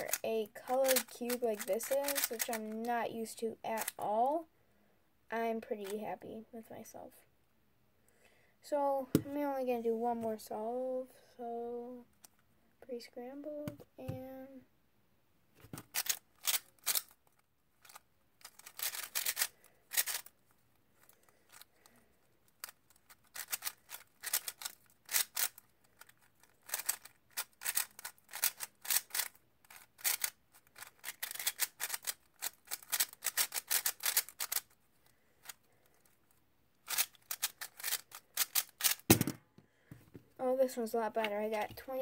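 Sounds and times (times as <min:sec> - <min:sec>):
plastic puzzle cube clicks: 0:00.8 - 0:02.6, 0:17.8 - 0:20.3, 0:22.6 - 0:34.8, 0:36.8 - 0:39.2.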